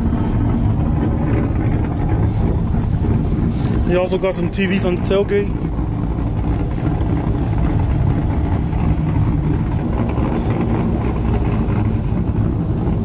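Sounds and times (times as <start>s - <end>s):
vehicle engine idling: 0.0s - 13.0s.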